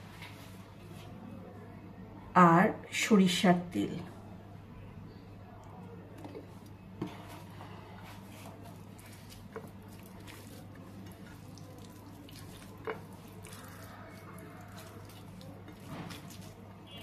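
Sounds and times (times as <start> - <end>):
wet squishing of food mixing: 5.4 - 17.0.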